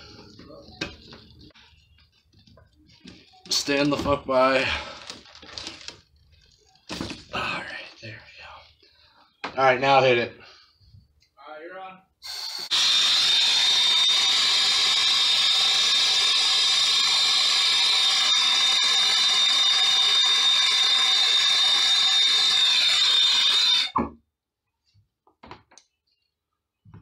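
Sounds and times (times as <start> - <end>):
induction heater whining: 12.5 - 24.0.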